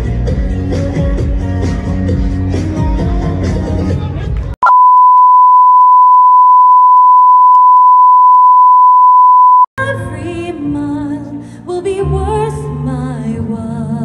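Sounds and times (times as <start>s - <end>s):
music: 0.0s - 4.5s, 9.8s - 14.0s
steady test-tone beep: 4.6s - 9.7s.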